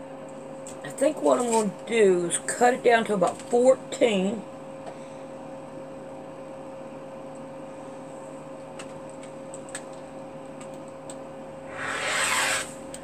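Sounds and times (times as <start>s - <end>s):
fabric being cut: 11.7s - 12.8s.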